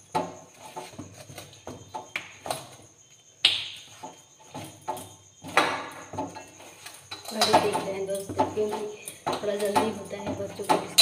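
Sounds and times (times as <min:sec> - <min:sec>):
steel utensils knocking and clicking: 0:04.5 - 0:11.0.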